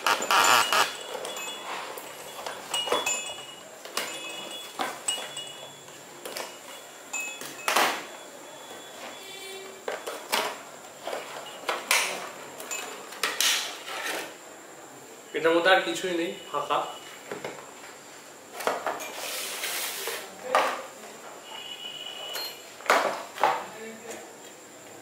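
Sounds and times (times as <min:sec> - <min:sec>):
toy chime bell tones: 0:00.0 - 0:05.8, 0:06.7 - 0:07.8.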